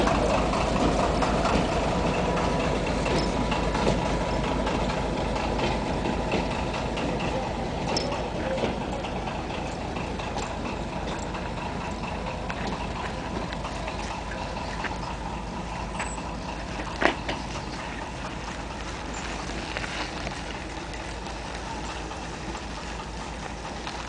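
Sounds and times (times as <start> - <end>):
distant diesel locomotive rumbling: 0.0 - 24.0.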